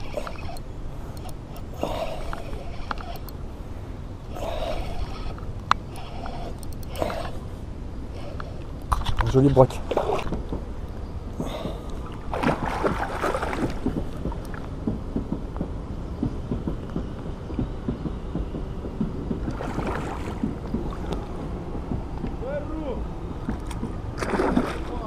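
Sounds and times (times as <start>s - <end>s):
steady low rumble: 0.0s - 25.0s
fish splashing in water: 11.6s - 14.0s, 23.5s - 25.0s.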